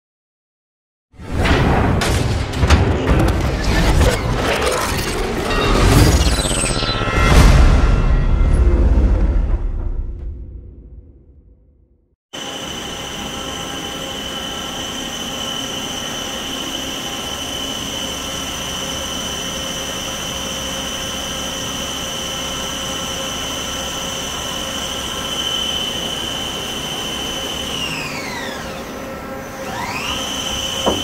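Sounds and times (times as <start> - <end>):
lathe spindle high-pitched whine: 12.4 - 31.0.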